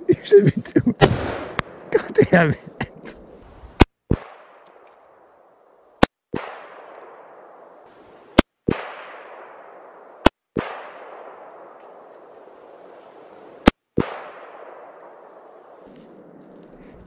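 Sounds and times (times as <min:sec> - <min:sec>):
rifle shots with echo: 0:01.0 - 0:01.9, 0:06.3 - 0:07.8, 0:08.4 - 0:12.1, 0:13.6 - 0:16.4.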